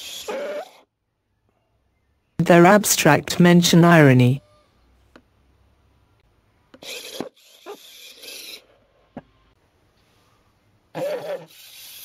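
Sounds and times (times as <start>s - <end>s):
robot wheel rasping scraping: 0.0s - 0.9s, 6.7s - 9.6s, 11.0s - 12.0s.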